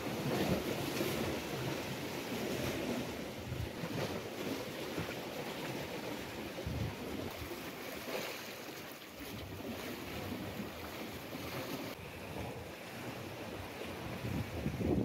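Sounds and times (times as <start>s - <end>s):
sea washing against rocks: 0.0s - 15.0s
wind rumbling on microphone: 5.9s - 7.5s, 11.8s - 15.0s.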